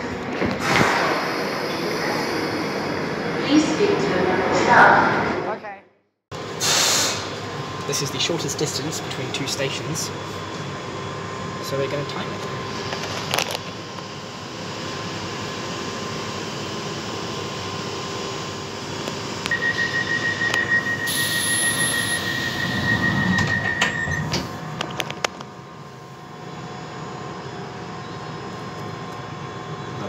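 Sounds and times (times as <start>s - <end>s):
train running through tunnel: 0.0s - 5.7s, 6.4s - 30.0s
high wheel squeal: 19.7s - 24.4s.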